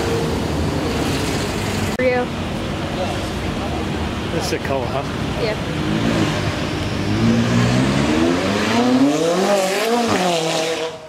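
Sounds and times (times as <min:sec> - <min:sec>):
sports car engine revving: 0:04.8 - 0:11.0.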